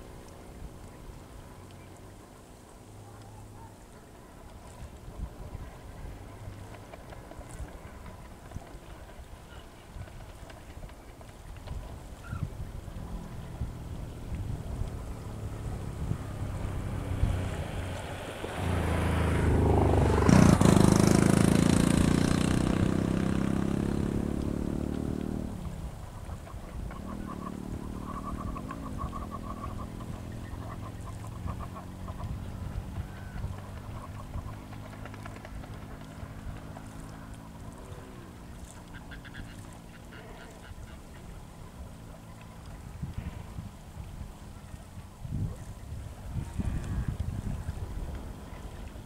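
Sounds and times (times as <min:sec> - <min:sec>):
waterbirds calling: 0:00.0 - 0:21.4, 0:22.2 - 0:49.0
motor engine passing: 0:11.6 - 0:49.0.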